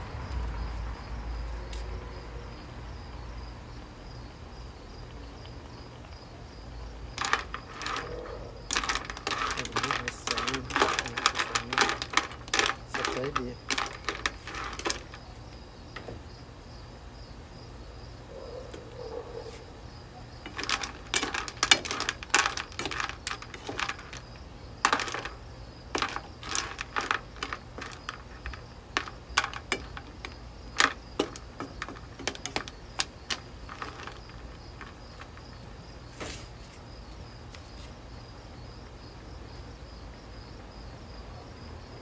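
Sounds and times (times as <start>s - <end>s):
shells clattering: 7.2s - 15.2s, 20.5s - 24.2s, 24.8s - 35.4s.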